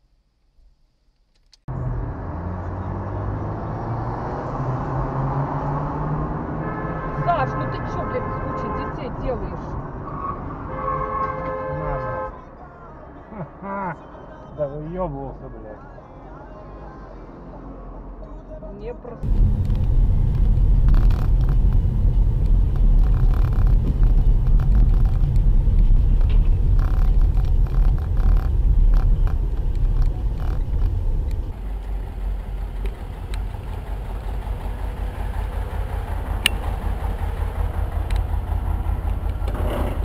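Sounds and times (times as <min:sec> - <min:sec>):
car rumble inside cabin: 0:18.2 - 0:40.0.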